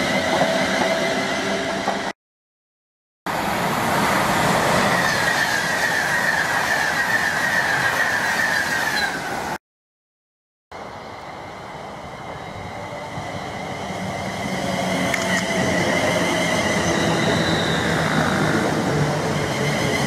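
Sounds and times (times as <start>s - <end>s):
electric train running past: 3.3s - 9.6s, 10.8s - 20.0s
wheels on rail: 3.3s - 9.6s, 10.8s - 20.0s.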